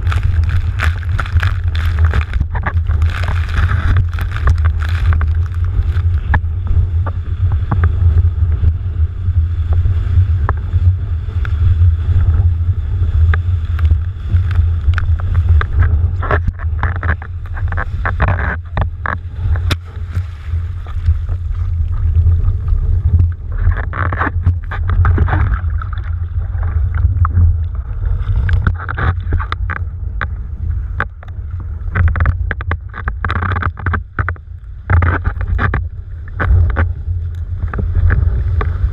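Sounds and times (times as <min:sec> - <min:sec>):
small knocks and splashes: 0:00.0 - 0:06.5, 0:23.1 - 0:27.5
rushing water and spray: 0:00.0 - 0:30.2
wind buffeting microphone: 0:00.0 - 0:38.9.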